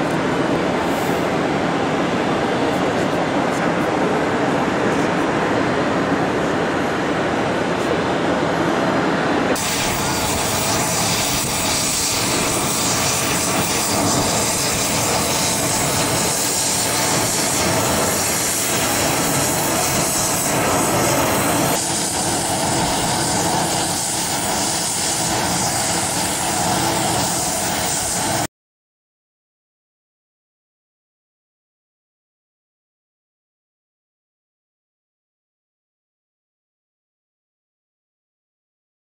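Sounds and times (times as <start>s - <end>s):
jet taking off: 0.0s - 28.5s.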